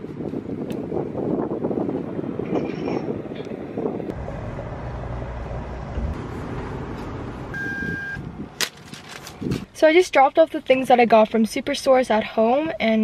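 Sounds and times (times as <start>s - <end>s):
wind buffeting microphone: 0.0s - 8.6s, 9.3s - 9.8s
short high beep: 7.6s - 8.2s.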